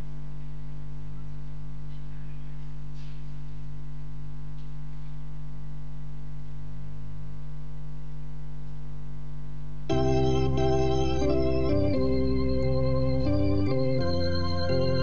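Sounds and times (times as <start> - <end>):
electrical hum: 0.0 - 15.0
organ chords: 9.9 - 15.0.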